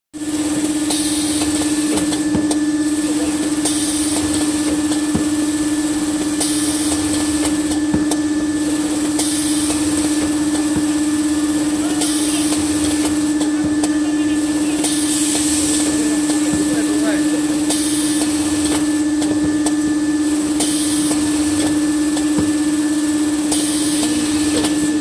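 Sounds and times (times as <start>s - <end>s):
machine hum: 0.2s - 25.0s
machine whine: 0.2s - 25.0s.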